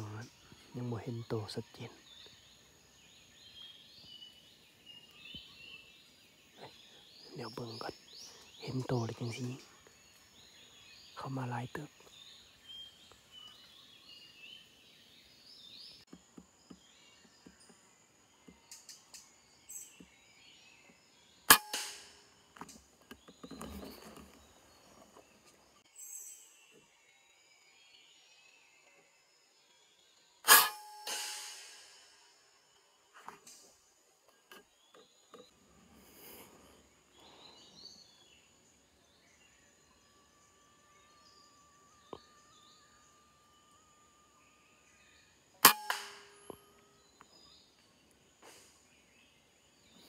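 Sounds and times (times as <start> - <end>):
faint high bird chirps: 0.0 - 16.1, 18.4 - 50.0
air rifle shot: 21.5 - 22.2, 30.5 - 32.1
sharp click: 21.5 - 22.8, 30.5 - 32.1, 45.6 - 46.6.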